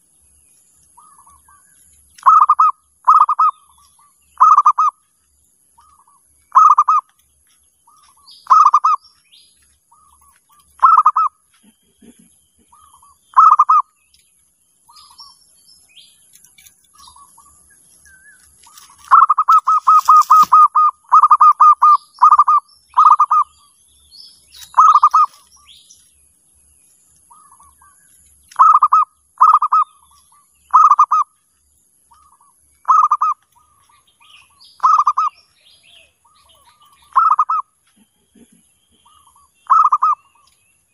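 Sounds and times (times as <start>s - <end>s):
small birds chirping: 0.0s - 40.9s
dove trilled cooing: 2.2s - 5.0s, 5.8s - 7.1s, 7.9s - 9.0s, 9.9s - 14.0s, 18.7s - 23.6s, 24.6s - 25.5s, 27.3s - 31.3s, 32.1s - 40.6s.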